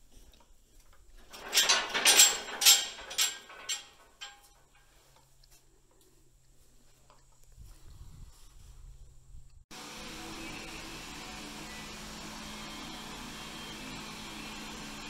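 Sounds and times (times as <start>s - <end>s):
metal gate rattling and clanking: 1.2s - 5.1s.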